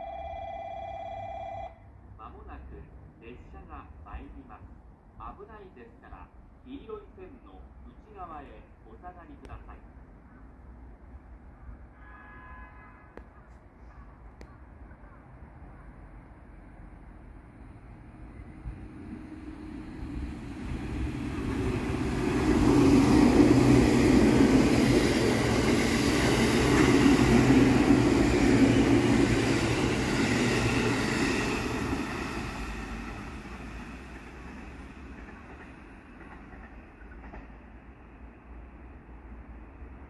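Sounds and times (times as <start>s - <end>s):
train passing rumble: 13.2s - 40.0s.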